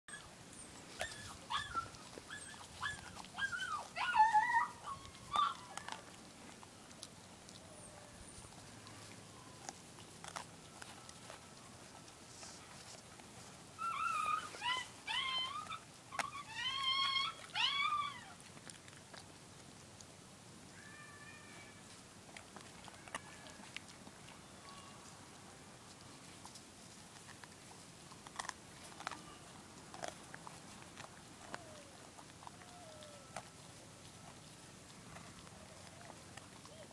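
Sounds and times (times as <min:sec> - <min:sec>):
dog whining: 0:00.9 - 0:06.2, 0:13.8 - 0:18.4, 0:28.4 - 0:33.5, 0:35.2 - 0:36.9
sharp crunches: 0:08.3 - 0:13.0, 0:26.3 - 0:36.8.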